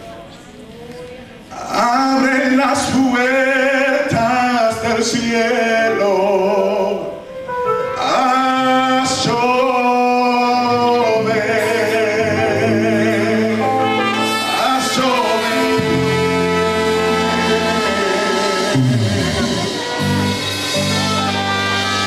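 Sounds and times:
man singing with vibrato: 0:01.5 - 0:22.0
electric keyboard: 0:05.6 - 0:22.0.

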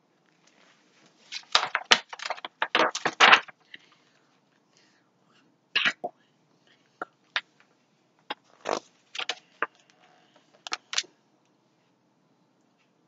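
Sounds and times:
book handling rustles and taps: 0:01.3 - 0:03.5.

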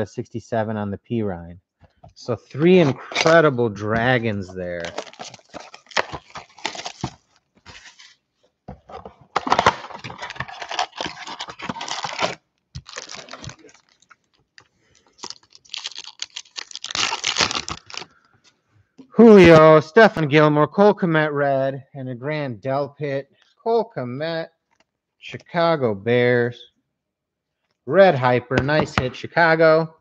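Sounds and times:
foil packs crinkling: 0:02.5 - 0:08.2, 0:09.3 - 0:18.3
cardboard box tearing: 0:02.6 - 0:08.2, 0:09.3 - 0:14.0, 0:15.2 - 0:18.0.

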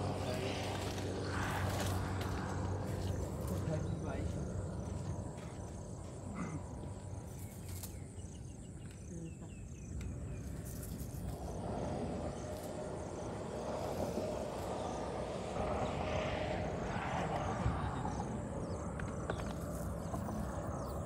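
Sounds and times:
broad rushing noise: 0:00.0 - 0:04.7, 0:11.0 - 0:21.0
faint insect chirping: 0:00.0 - 0:21.0
steady low rumble: 0:00.0 - 0:21.0.

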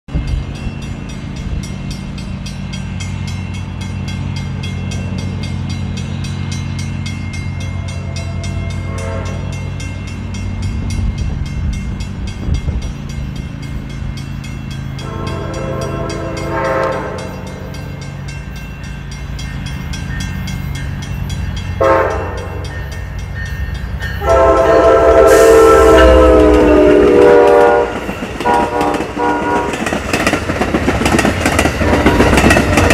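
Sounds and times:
diesel locomotive approaching: 0:00.1 - 0:32.9
locomotive air horn: 0:07.8 - 0:09.6, 0:15.0 - 0:17.8, 0:21.8 - 0:22.6, 0:24.2 - 0:29.9.

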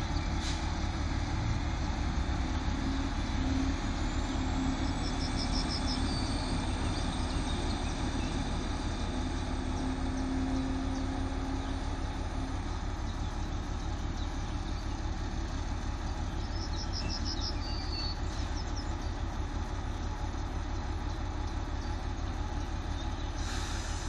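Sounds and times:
distant engine drone: 0:00.0 - 0:24.0
bird chirping: 0:16.1 - 0:19.2.

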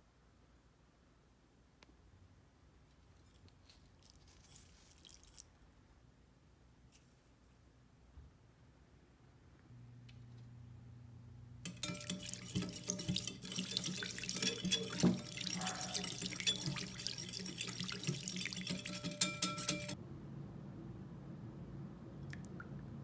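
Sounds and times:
whisk beating liquid in glass bowl: 0:11.6 - 0:20.0
dog barking: 0:15.5 - 0:16.3.

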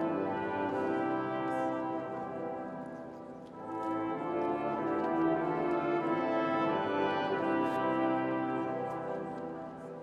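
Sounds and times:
brass ensemble playing chords: 0:00.0 - 0:03.0, 0:03.6 - 0:09.3.

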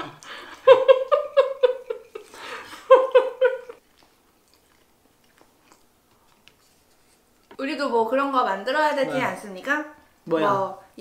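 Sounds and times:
woman laughing: 0:00.0 - 0:03.8.

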